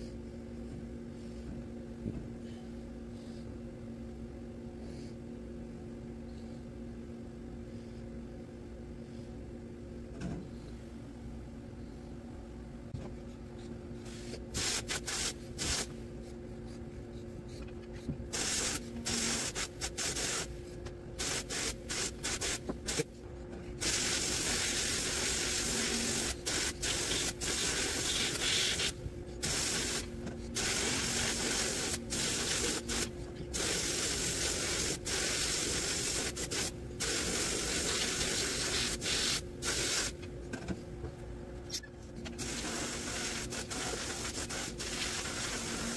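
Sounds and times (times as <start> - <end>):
faint steady hum: 0.0 - 45.9
sandblast gun hissing: 14.2 - 15.9, 18.3 - 20.5, 21.2 - 22.6, 23.8 - 40.1.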